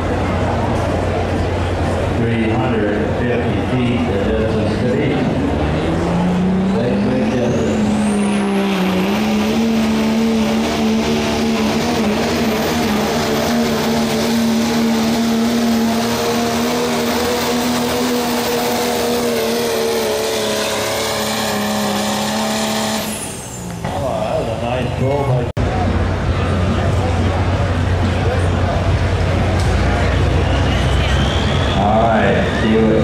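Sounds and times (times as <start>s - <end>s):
diesel truck engine at full throttle: 0.0s - 33.0s
turbocharger whistle: 6.3s - 23.8s, 29.9s - 33.0s.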